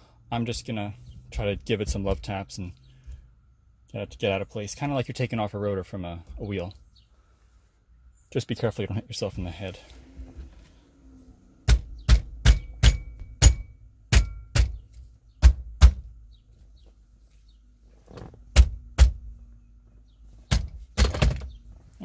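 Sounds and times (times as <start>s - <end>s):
steering wheel being struck: 11.6s - 16.1s.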